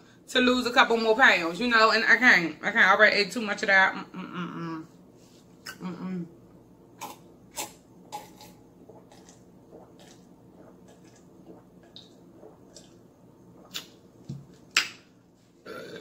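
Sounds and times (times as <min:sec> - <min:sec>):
person gulping a drink: 0:07.0 - 0:15.0, 0:15.6 - 0:16.0.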